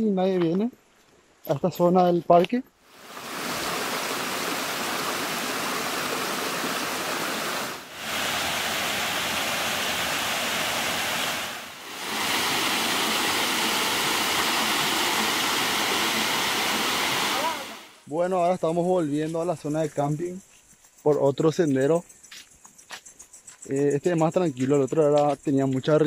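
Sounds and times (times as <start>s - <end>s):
waterfall rushing: 2.9s - 18.0s.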